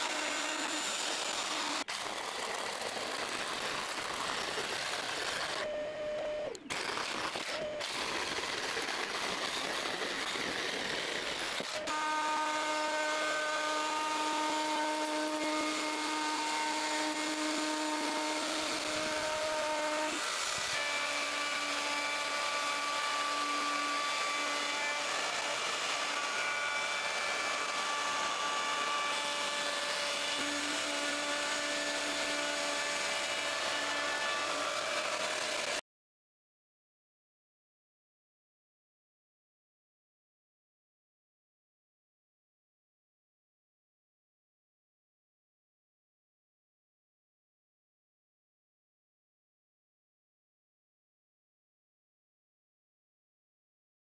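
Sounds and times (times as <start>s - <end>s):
jigsaw cutting wood: 0.0s - 5.8s, 6.5s - 35.8s
router and sander whining: 0.0s - 35.8s.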